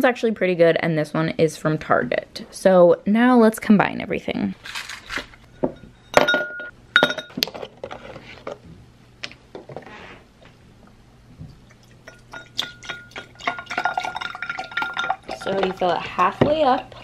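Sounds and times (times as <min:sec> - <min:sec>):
liquid pouring over ice: 0:11.7 - 0:17.0
ice cubes clinking in glass: 0:12.1 - 0:15.8.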